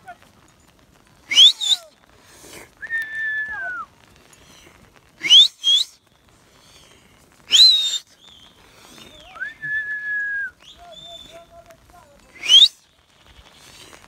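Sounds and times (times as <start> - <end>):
person whistling to sheep: 1.3 - 2.0, 2.8 - 3.9, 5.2 - 6.0, 7.5 - 8.1, 9.2 - 11.4, 12.4 - 12.8.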